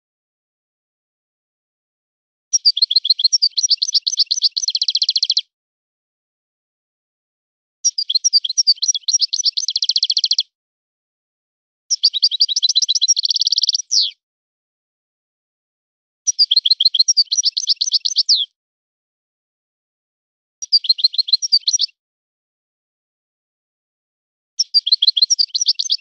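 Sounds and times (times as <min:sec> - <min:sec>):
goldfinch twittering song: 0:02.6 - 0:05.4, 0:07.8 - 0:10.5, 0:11.9 - 0:14.2, 0:16.3 - 0:18.5, 0:20.6 - 0:22.0, 0:24.6 - 0:26.0.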